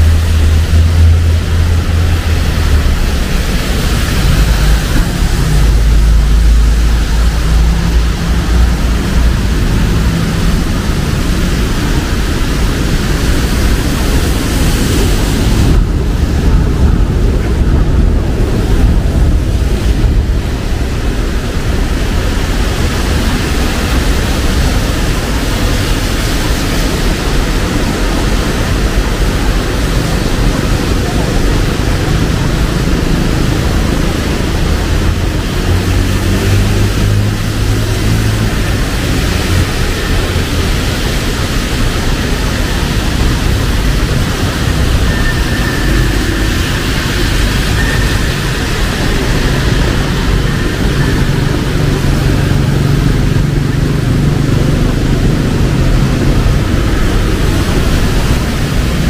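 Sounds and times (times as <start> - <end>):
steady rain hissing: 0.0 - 59.0
street traffic rumble: 0.0 - 59.0.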